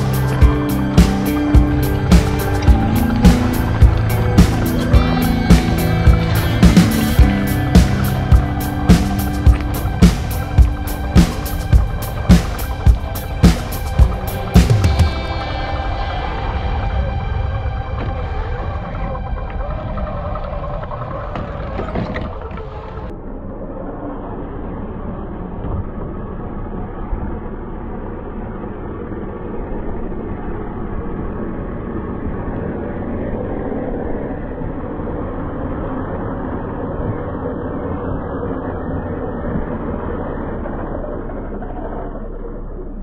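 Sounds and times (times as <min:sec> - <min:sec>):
background music: 0:00.0 - 0:21.0.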